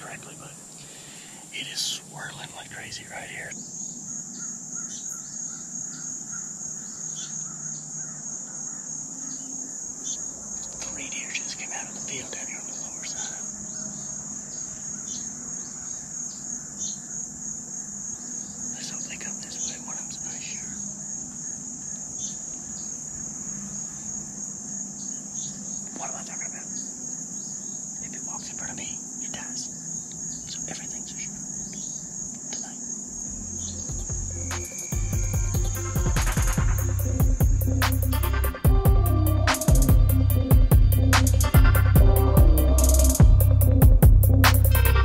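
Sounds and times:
crickets chirping: 0.0s - 45.0s
insect chorus trilling: 0.0s - 45.0s
faint low hum: 10.0s - 15.8s.

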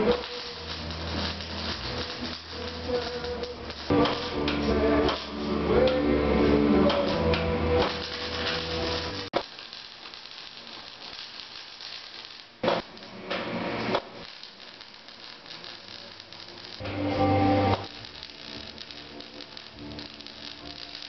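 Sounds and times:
background music: 0.0s - 9.3s, 15.8s - 21.0s
welding arc crackling: 0.0s - 21.0s.

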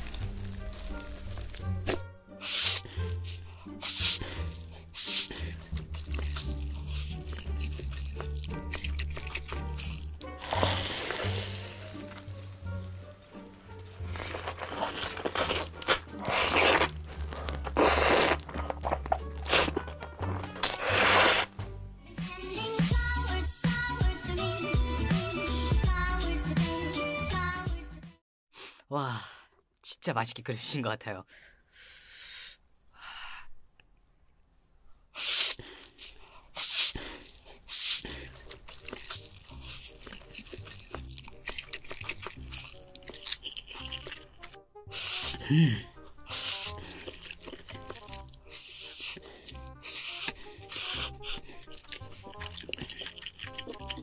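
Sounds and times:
wet crunchy chewing: 0.0s - 21.5s, 35.5s - 54.0s
person slurping spaghetti: 0.1s - 12.3s, 13.6s - 21.5s, 35.2s - 54.0s
background music with bass: 15.7s - 28.2s.

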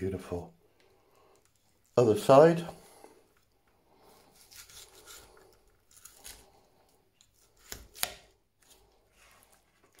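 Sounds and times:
knife slicing roast bird: 4.3s - 6.6s, 7.4s - 8.8s.

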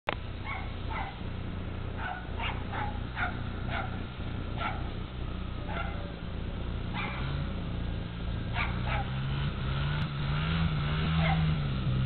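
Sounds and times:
small dog yapping: 0.4s - 1.2s, 2.0s - 4.0s, 4.6s - 4.9s, 5.7s - 6.2s, 6.9s - 7.3s, 8.5s - 9.1s, 11.2s - 11.6s.

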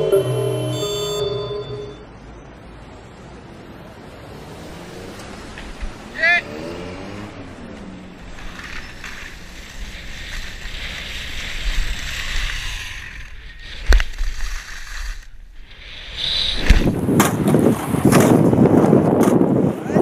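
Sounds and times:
skis sliding over snow: 8.3s - 15.3s
wind rushing across microphone: 15.8s - 20.0s.

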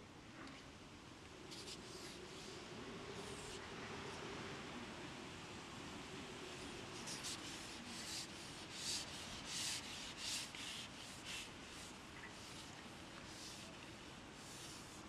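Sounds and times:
fishing pole rasping on support: 7.1s - 13.8s.

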